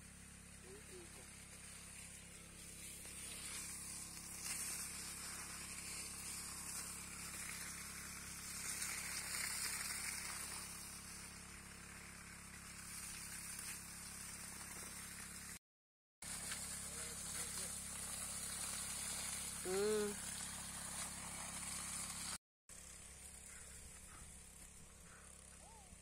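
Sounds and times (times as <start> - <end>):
water jetting and splashing: 1.4 - 15.6, 16.2 - 22.4.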